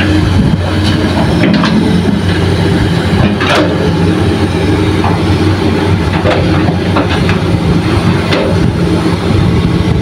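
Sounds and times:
excavator diesel engine droning: 0.0s - 10.0s.

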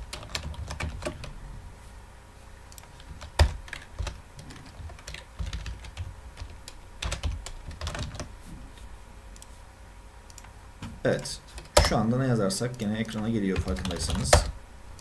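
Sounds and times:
computer keyboard typing: 0.0s - 1.3s, 2.8s - 8.3s, 12.8s - 14.5s.

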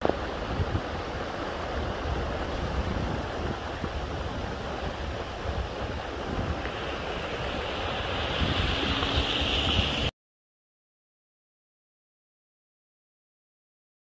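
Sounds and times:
rushing flood water: 0.0s - 10.1s
wind buffeting microphone: 0.0s - 10.1s
car splashing through water: 0.1s - 10.1s.

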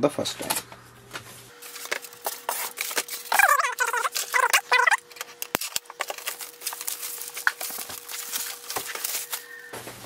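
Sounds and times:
crackling plastic rustle: 1.5s - 10.0s
plastic packing squeak: 2.4s - 5.2s, 5.9s - 9.8s.

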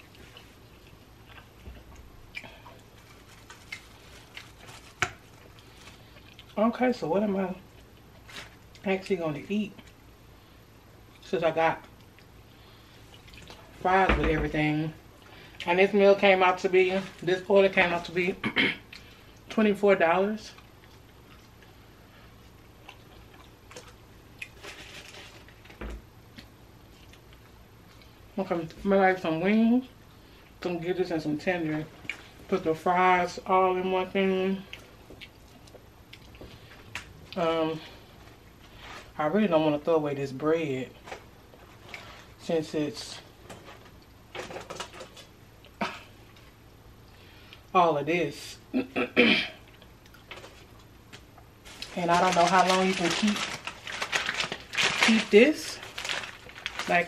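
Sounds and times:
food containers clicking and rustling: 43.4s - 45.3s, 50.2s - 57.0s.

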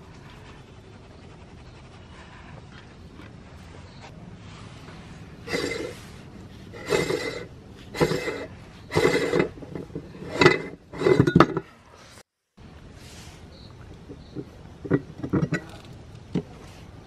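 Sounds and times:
metal scraping and clinking: 5.4s - 12.2s, 14.1s - 16.5s.

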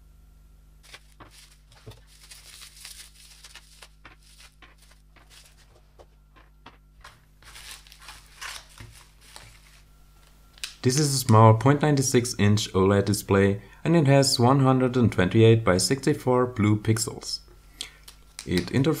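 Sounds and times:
packaging tearing: 0.8s - 5.7s, 7.4s - 9.8s
plastic packaging crinkling: 0.8s - 10.8s.

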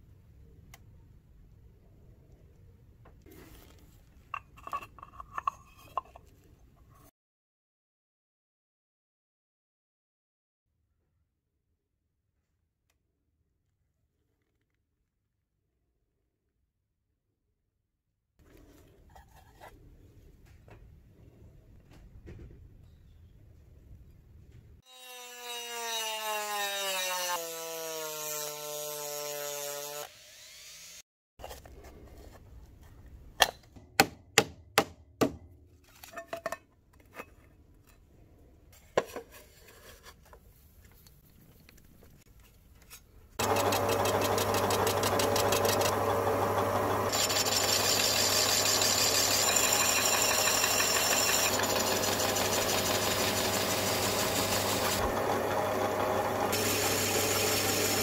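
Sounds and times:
metal lathe humming: 43.4s - 58.0s
rotary tool sanding: 43.4s - 58.0s.

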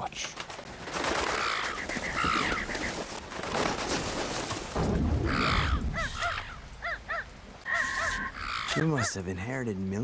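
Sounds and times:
crow cawing: 1.3s - 2.9s, 5.3s - 9.1s.

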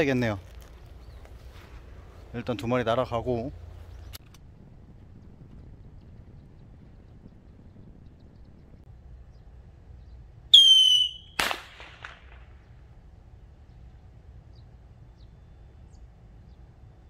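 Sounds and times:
firework rocket whistle: 10.5s - 12.2s.

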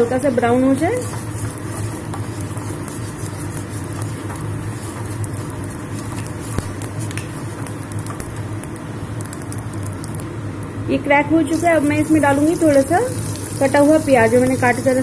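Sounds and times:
wooden spatula stirring: 0.0s - 8.5s
seeds sizzling and popping in oil: 0.0s - 10.8s, 11.5s - 15.0s.

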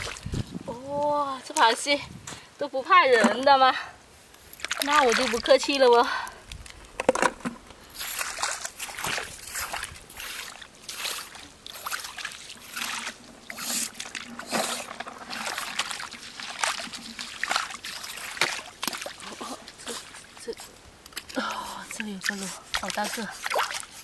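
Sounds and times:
boots wading through water: 0.0s - 0.3s, 4.4s - 6.2s, 7.9s - 24.0s.

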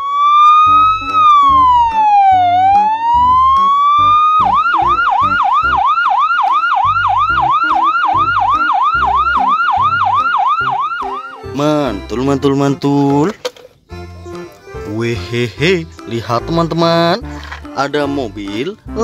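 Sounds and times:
ambulance siren wail and yelp: 0.0s - 11.6s.

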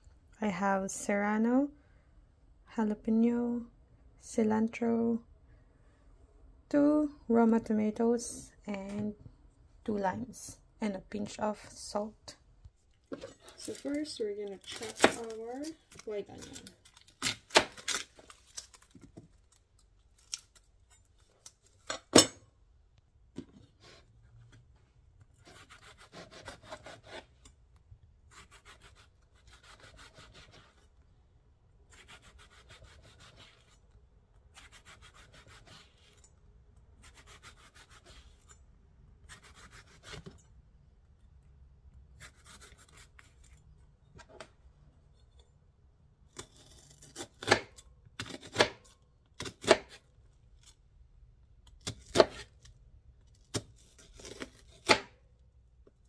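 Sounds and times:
knife slicing onion: 25.4s - 27.4s, 28.3s - 30.8s, 31.9s - 33.8s, 34.5s - 36.2s, 37.0s - 38.6s, 39.2s - 40.4s, 42.2s - 43.3s, 46.3s - 50.0s, 51.7s - 52.6s, 53.4s - 55.2s.

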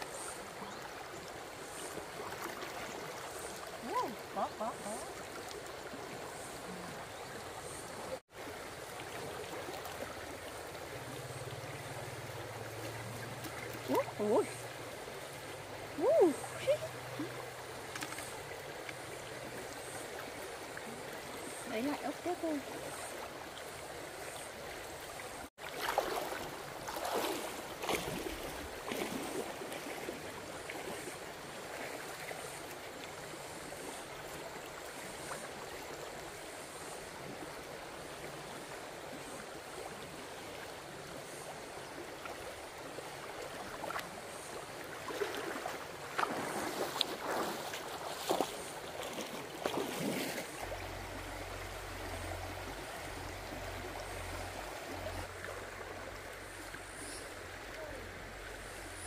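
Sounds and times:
shallow stream running: 0.0s - 59.0s
splashing in water: 25.6s - 31.0s, 44.9s - 51.2s.

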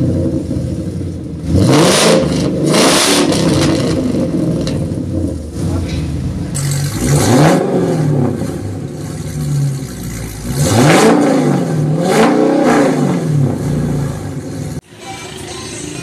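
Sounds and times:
car engine revving: 0.0s - 16.0s.

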